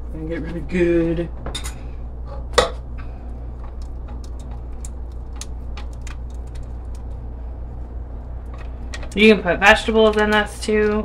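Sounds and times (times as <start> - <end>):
steady low hum: 0.0 - 11.0
whisk ticking on pan sides: 3.6 - 7.2.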